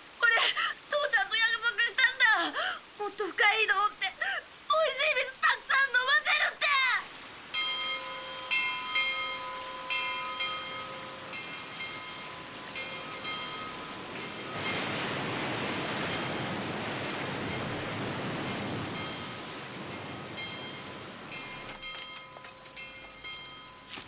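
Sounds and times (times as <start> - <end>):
rain falling: 0.0 - 24.0
tower bell tolling: 7.6 - 15.0, 20.0 - 24.0.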